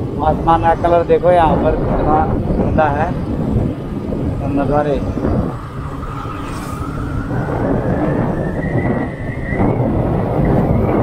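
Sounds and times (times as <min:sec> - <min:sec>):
vehicle engine and road rumble: 0:00.0 - 0:11.0
thin rising whine: 0:04.5 - 0:11.0.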